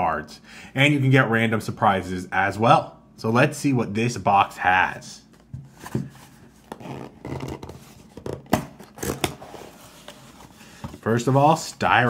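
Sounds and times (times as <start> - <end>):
cardboard box scraping: 5.7 - 10.6.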